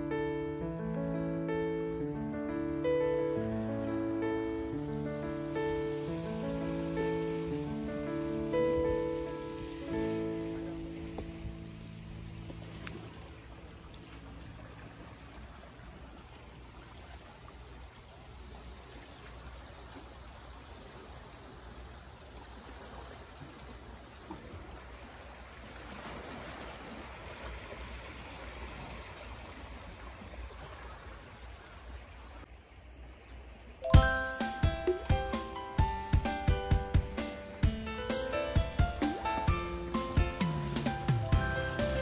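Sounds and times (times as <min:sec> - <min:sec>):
waves lapping on rocks: 0:05.5 - 0:32.5.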